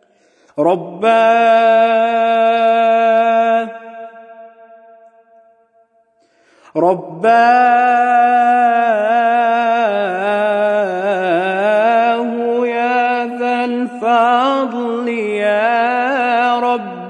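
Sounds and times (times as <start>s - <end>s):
breath catch: 0.0s - 0.6s, 6.1s - 6.8s
man singing unaccompanied: 0.6s - 3.9s, 6.8s - 17.0s.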